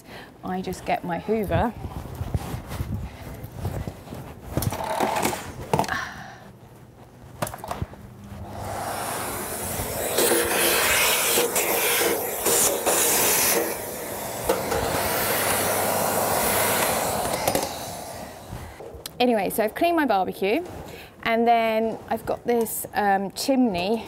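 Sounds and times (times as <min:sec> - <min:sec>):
vacuum cleaner running: 0:08.3 - 0:18.8.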